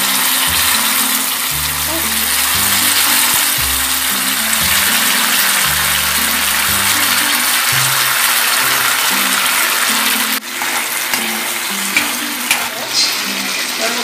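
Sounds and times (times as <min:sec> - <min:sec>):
sauce sizzling in a frying pan: 0:00.0 - 0:14.0
spatula stirring: 0:02.1 - 0:13.7
spatula tapping on pan: 0:10.6 - 0:12.7.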